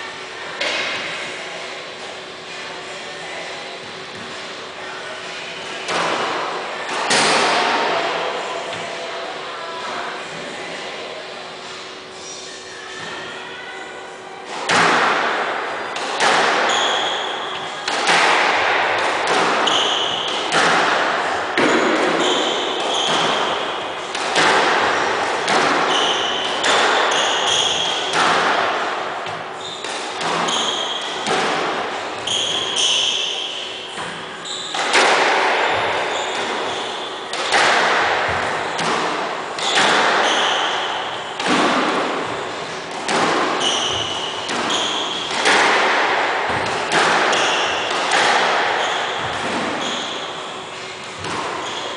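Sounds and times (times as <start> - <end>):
squash ball hits echoing: 5.8 - 8.9, 14.5 - 51.9
sneakers squeaking on wooden floor: 21.6 - 23.6, 29.5 - 31.2, 32.2 - 35.0, 35.6 - 37.3, 39.6 - 41.1, 43.6 - 45.4, 48.8 - 51.9.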